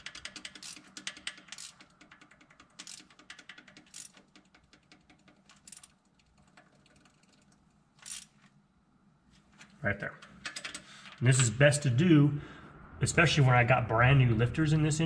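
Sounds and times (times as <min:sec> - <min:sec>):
ratchet clicking: 0:00.0 - 0:08.5, 0:10.4 - 0:11.2.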